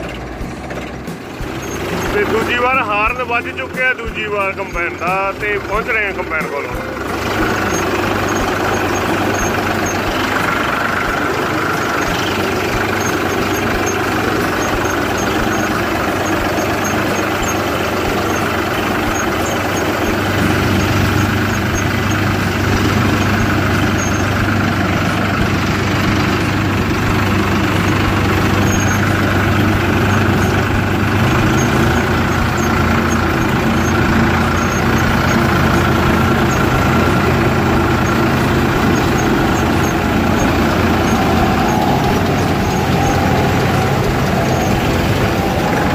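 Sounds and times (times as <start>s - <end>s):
combine harvester running: 0.0s - 45.9s
tractor engine running: 0.0s - 45.9s.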